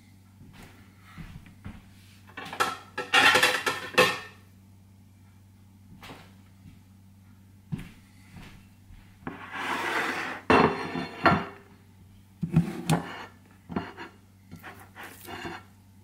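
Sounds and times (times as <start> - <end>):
scraping rub: 9.3 - 11.3, 12.5 - 15.7.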